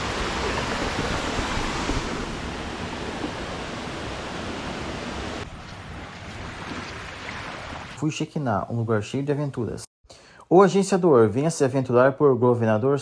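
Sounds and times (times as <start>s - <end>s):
waterfall rushing: 0.0s - 5.4s.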